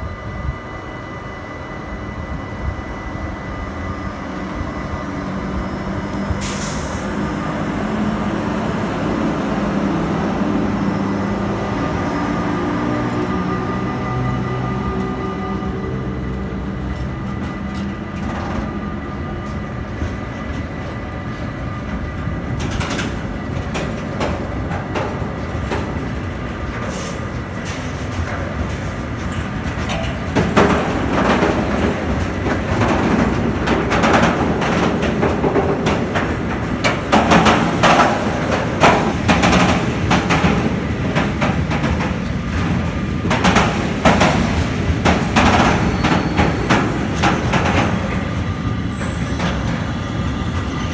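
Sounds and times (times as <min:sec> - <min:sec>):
electric locomotive hum: 0:00.0 - 0:50.9
freight train rumbling: 0:00.0 - 0:50.9
wheels clattering over rail joints: 0:16.0 - 0:50.9.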